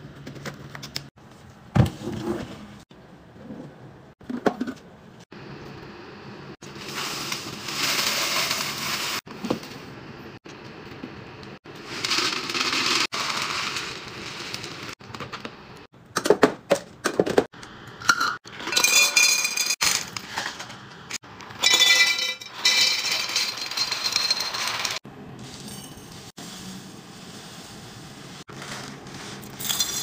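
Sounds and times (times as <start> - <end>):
dry pasta rattling into glass jars: 11.8 - 14.9, 21.6 - 25.0, 29.5 - 30.0.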